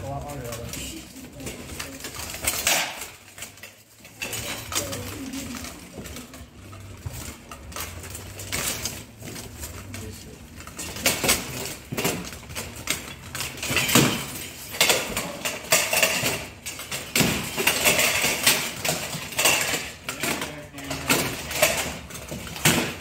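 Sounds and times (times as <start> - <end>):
plate armour and weapons clanking: 0.0 - 23.0.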